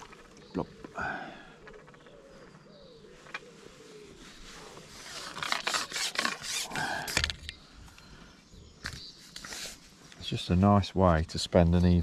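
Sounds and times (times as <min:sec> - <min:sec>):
fishing tackle rubbing and scraping: 0:01.6 - 0:07.6, 0:08.8 - 0:10.2.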